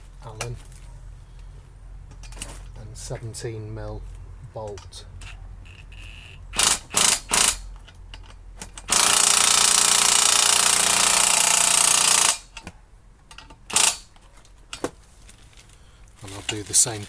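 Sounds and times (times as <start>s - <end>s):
impact driver hammering: 6.5s - 7.7s, 8.8s - 12.7s, 13.7s - 14.1s.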